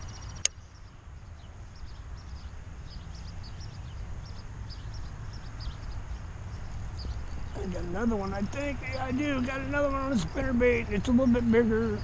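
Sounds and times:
small birds chirping: 0.0s - 12.0s
sharp click: 0.4s - 0.6s.

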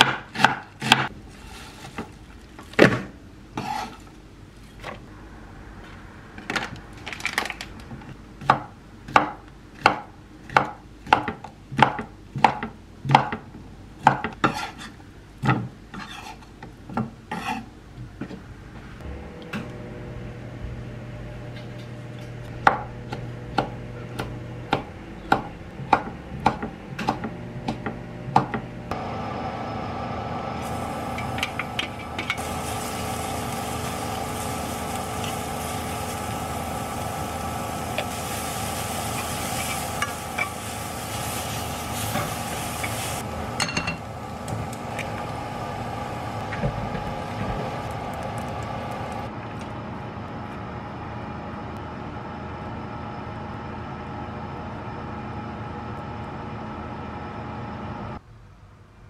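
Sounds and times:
knife chopping on wooden board: 0.0s - 1.1s.

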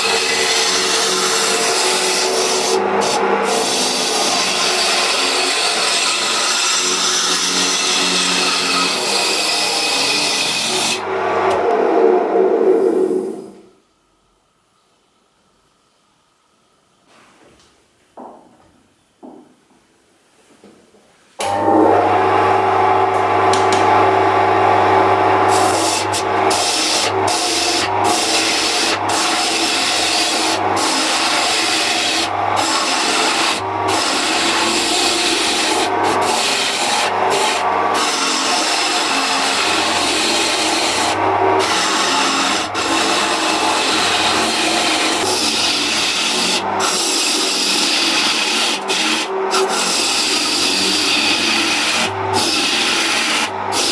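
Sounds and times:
gouge scraping wood on lathe: 0.0s - 11.1s, 23.6s - 53.9s
lathe motor hum: 0.0s - 13.4s, 21.4s - 53.9s.

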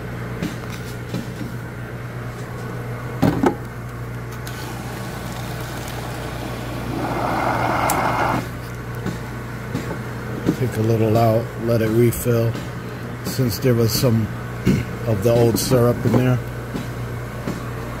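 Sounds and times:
machine humming: 4.4s - 8.6s
syrup pouring into a tub: 4.6s - 8.5s.

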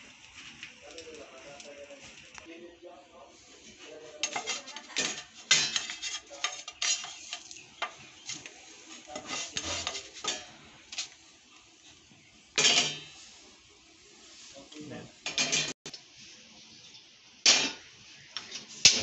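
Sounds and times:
plastic spatula scraping frying pan: 4.1s - 11.2s.

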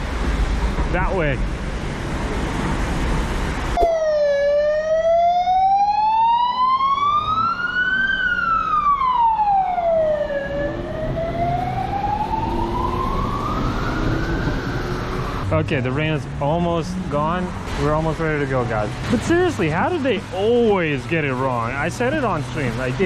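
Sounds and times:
emergency siren wailing: 3.8s - 15.4s.

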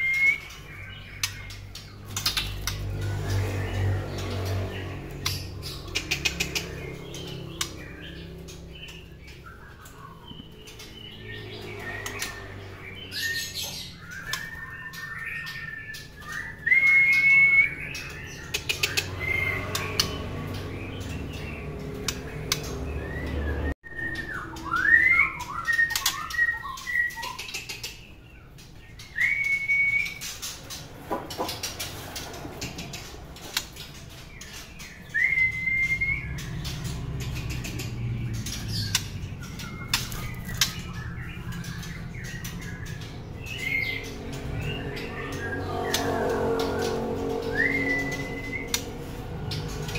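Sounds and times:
birds whistling: 0.0s - 49.9s
sharp clicks in wire cage: 1.2s - 2.9s, 4.2s - 7.8s, 18.5s - 20.7s, 21.9s - 22.8s, 36.5s - 40.9s.

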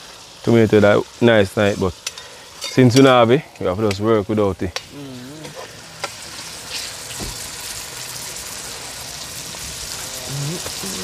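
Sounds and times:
fish frying sizzle: 0.0s - 11.0s.

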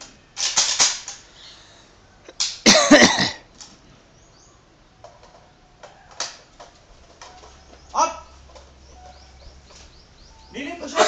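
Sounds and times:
person coughing: 2.7s - 3.5s.

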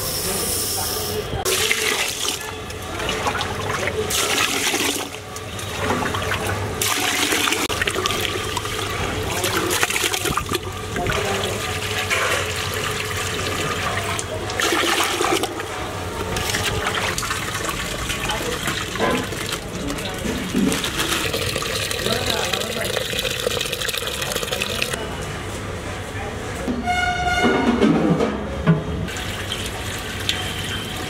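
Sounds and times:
water sloshing in steel vessel: 1.5s - 22.2s.

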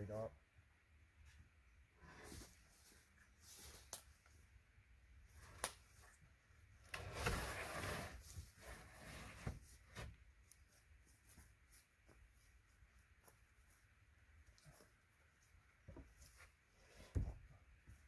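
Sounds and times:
wooden pole scraping: 6.9s - 10.2s.

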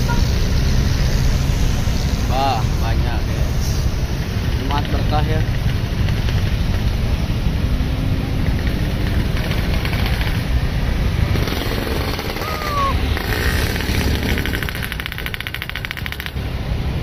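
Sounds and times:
diesel engines rumbling: 0.0s - 17.0s
motorcycles passing: 0.0s - 17.0s.

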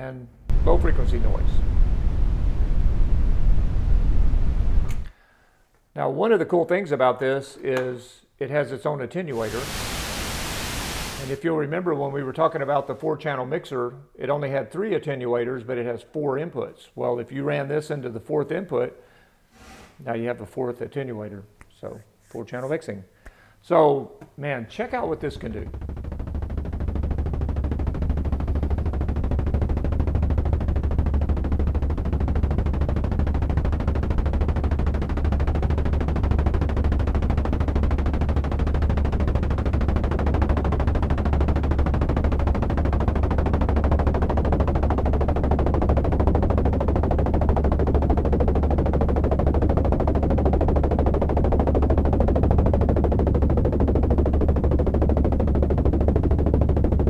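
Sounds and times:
steady low synth hum: 0.4s - 5.1s, 24.9s - 57.0s
synthesized helicopter rotor noise: 0.5s - 5.1s, 9.3s - 11.5s, 24.8s - 57.0s.

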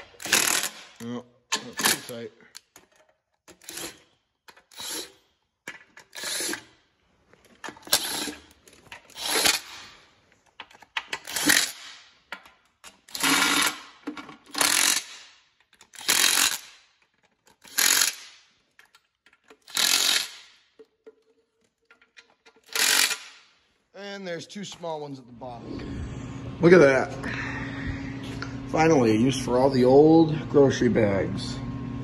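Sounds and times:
cordless impact wrench bursts: 0.0s - 1.0s, 3.5s - 4.0s, 4.6s - 5.2s, 6.0s - 6.7s, 7.8s - 10.0s, 11.2s - 12.1s, 13.0s - 16.9s, 17.6s - 18.5s, 19.6s - 20.6s, 22.6s - 23.5s.

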